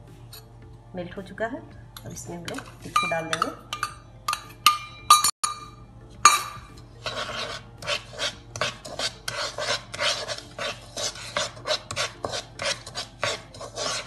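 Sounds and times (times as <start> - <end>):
metal clink: 3.0 - 5.7
wooden spatula scraping in a pan: 6.8 - 14.0.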